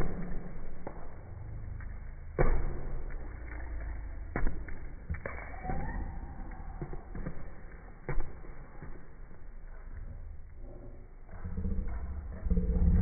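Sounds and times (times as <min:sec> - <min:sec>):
ball thudding on tiled floor: 0:01.8 - 0:03.6, 0:04.3 - 0:09.3.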